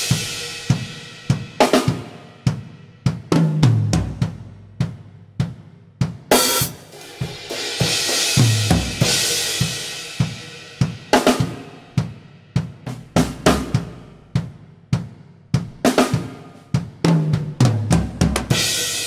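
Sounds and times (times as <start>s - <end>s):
drum strokes: 6.3s - 11.6s.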